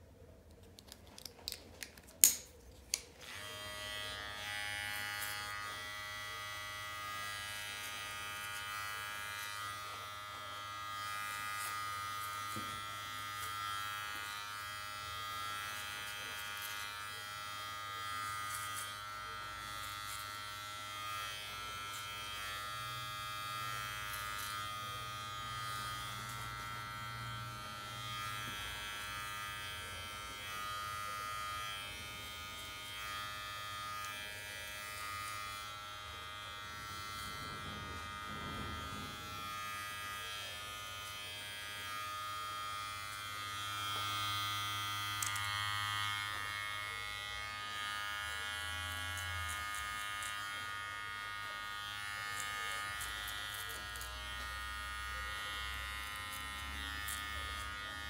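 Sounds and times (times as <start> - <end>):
plastic clicks of clipper guard: 0.4 - 3.1, 45.2 - 45.5
hair clipper buzzing: 0.8 - 58.0.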